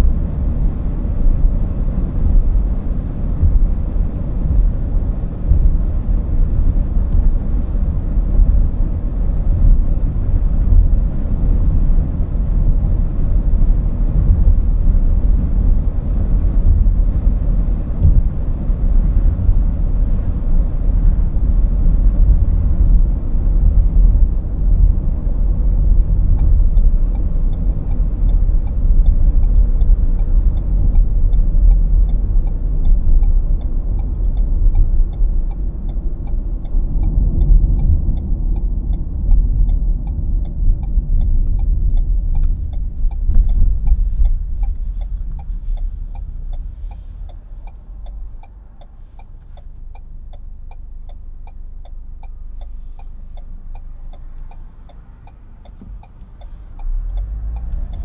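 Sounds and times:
road and engine rumble in car: 0.0 - 58.0
faint regular ticking: 25.2 - 58.0.

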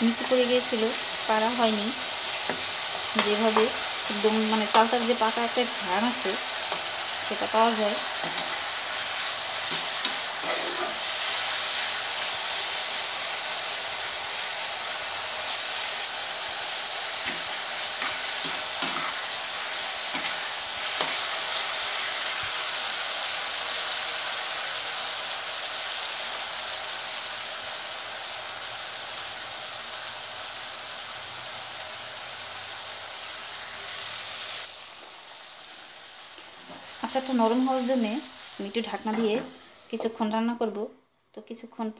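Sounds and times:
pickle sizzling in oil: 0.0 - 40.3
spatula scraping a pan: 2.2 - 12.8, 17.2 - 22.4.

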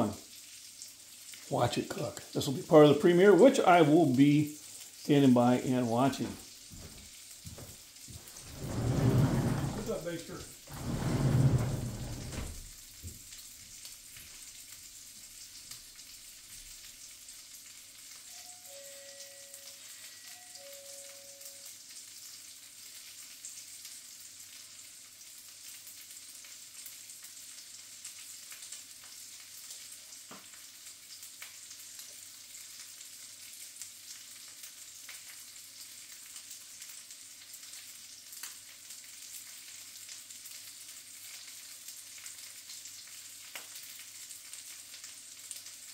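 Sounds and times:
sausages sizzling in a frying pan: 0.0 - 10.7, 12.5 - 45.9
two-note tone: 18.3 - 21.7.

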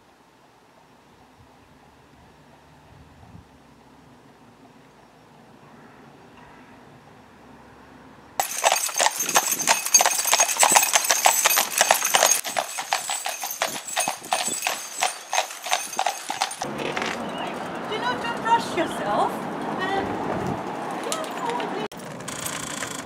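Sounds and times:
horse hooves clip-clopping on tarmac: 8.4 - 23.0.

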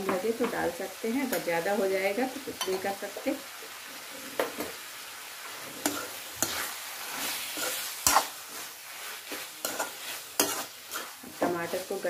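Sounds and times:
food sizzling in a pan: 0.0 - 12.0
metal spatula scraping a pan: 5.5 - 12.0.

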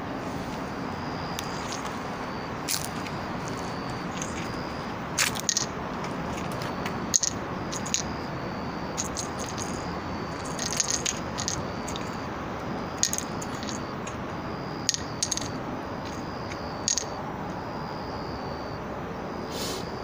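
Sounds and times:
toy ball jingling: 5.3 - 5.7, 7.1 - 8.2, 8.9 - 12.2, 13.0 - 14.1, 14.8 - 17.2.

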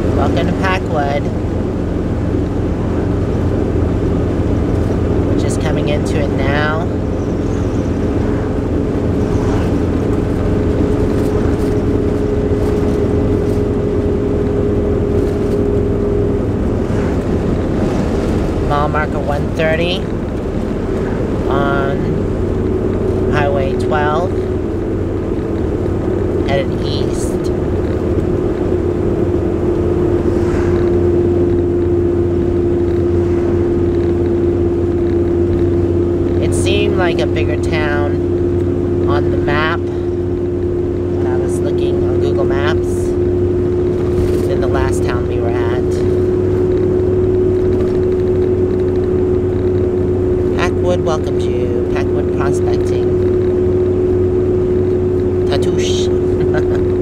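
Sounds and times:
engine and road rumble: 0.0 - 57.0
steady whine: 0.0 - 57.0
vehicle swishing past: 7.2 - 14.1, 15.0 - 18.7, 29.9 - 34.2.

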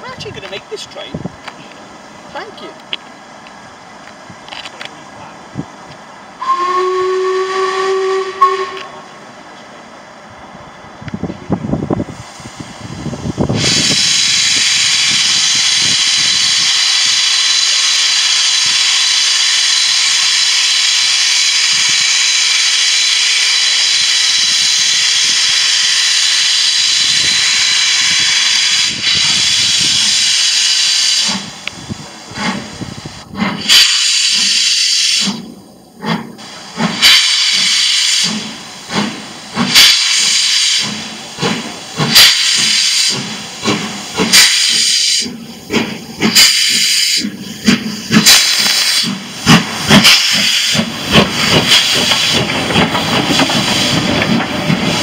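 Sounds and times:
steam locomotive exhaust chuffs: 3.2 - 10.2, 10.8 - 55.0
steam hissing from drain cocks: 33.4 - 55.0.

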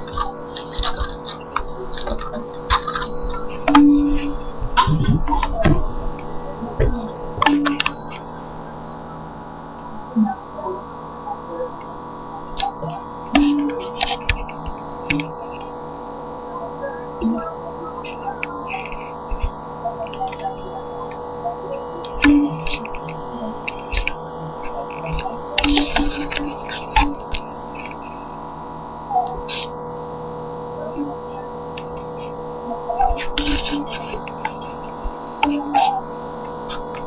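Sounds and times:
electrical hum: 0.0 - 37.0
clicks: 22.0 - 28.5.

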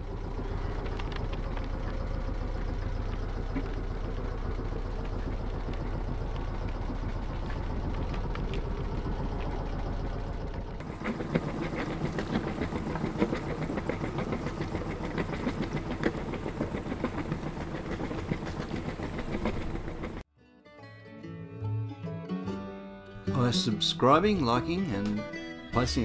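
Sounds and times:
diesel engine chugging: 0.0 - 20.2.

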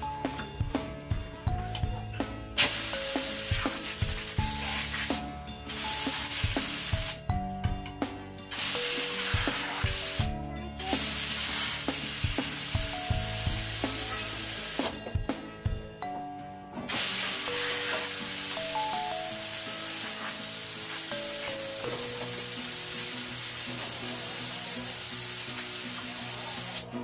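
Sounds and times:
background music: 0.0 - 27.0
water gushing from a tap: 2.6 - 5.2, 5.8 - 7.2, 8.6 - 10.3, 11.0 - 15.0, 16.9 - 26.9.

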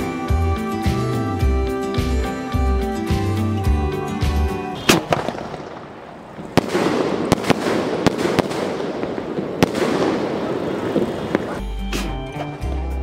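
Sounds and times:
firework crackling: 4.8 - 11.6
firework sharp bursts: 4.8 - 11.6
firework launch report: 4.8 - 12.2.

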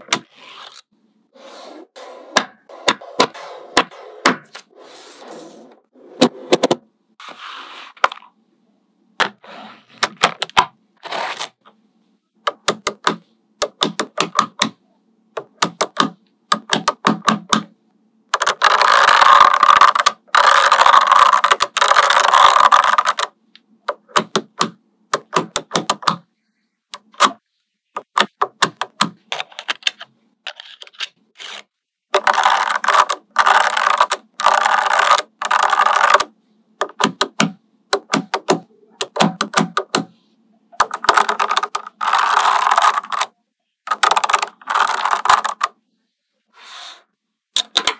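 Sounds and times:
magnetic balls clicking together: 32.1 - 40.1, 43.9 - 45.7
magnetic balls rattling: 43.9 - 45.7.

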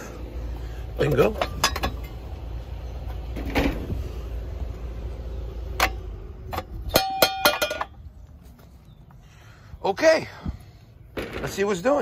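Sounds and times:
air conditioner compressor humming: 0.0 - 12.0.

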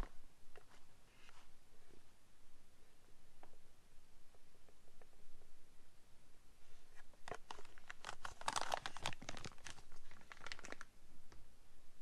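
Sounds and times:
plastic bag crinkling: 7.2 - 10.9.

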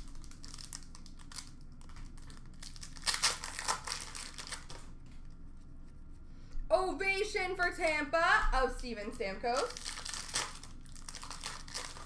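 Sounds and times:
foil wrappers crinkling: 0.0 - 5.2, 9.5 - 12.0.

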